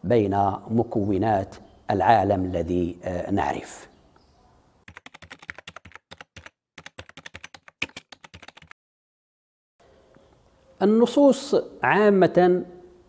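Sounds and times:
computer keyboard typing: 4.8s - 8.8s.

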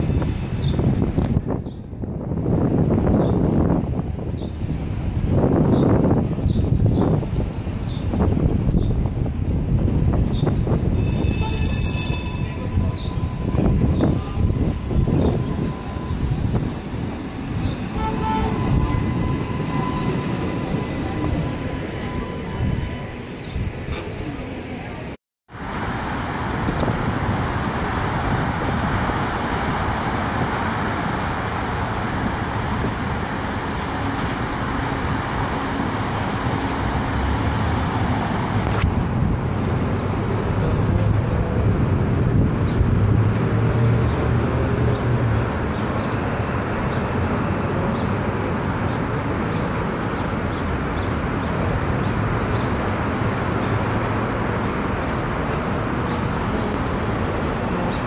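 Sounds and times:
passing cars: 12.5s - 58.0s.

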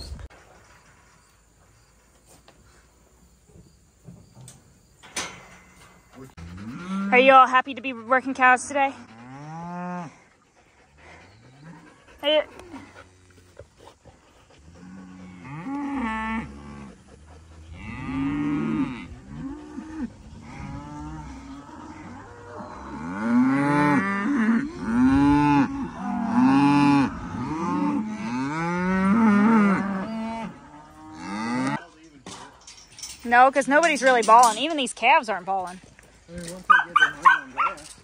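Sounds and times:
cattle mooing: 8.4s - 10.2s, 14.7s - 31.8s.

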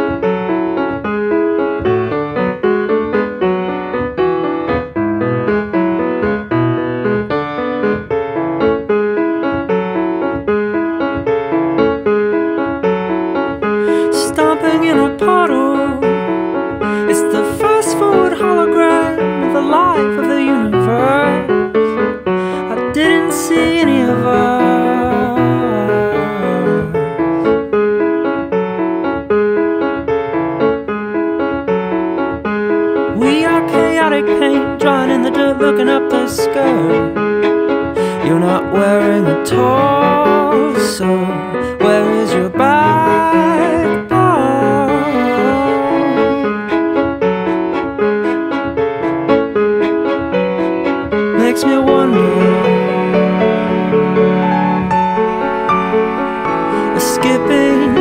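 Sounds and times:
piano playing repeating notes: 0.0s - 58.0s
person singing: 13.8s - 27.4s, 33.1s - 37.2s, 37.9s - 46.8s, 51.2s - 55.2s, 56.2s - 58.0s.

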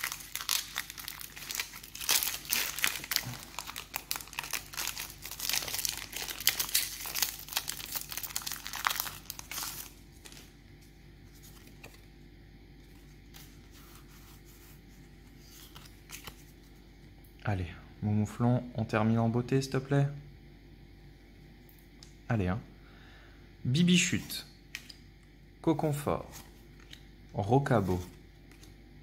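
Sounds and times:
foil pack crinkling: 0.0s - 10.6s
faint steady hum: 0.0s - 29.0s.

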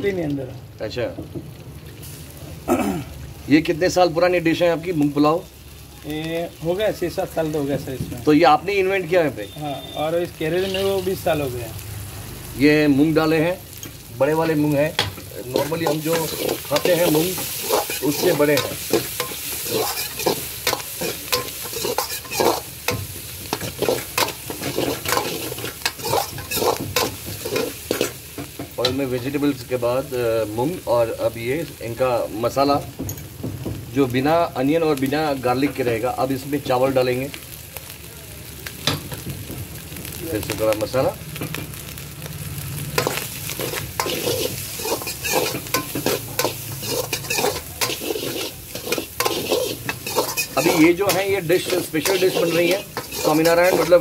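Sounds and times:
food sizzling: 0.0s - 54.0s
ladle scraping metal pan: 15.5s - 22.7s, 23.5s - 28.2s, 43.0s - 54.0s.

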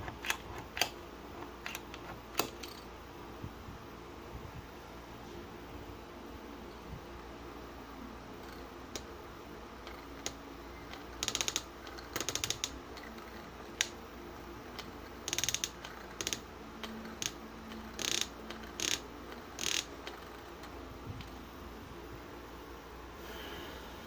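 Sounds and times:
push drill ratchety clicking: 18.0s - 19.0s, 19.6s - 19.9s.

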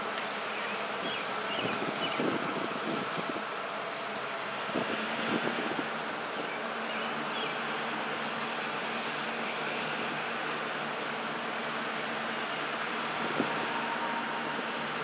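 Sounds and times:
locomotive engine drone: 0.0s - 15.0s.

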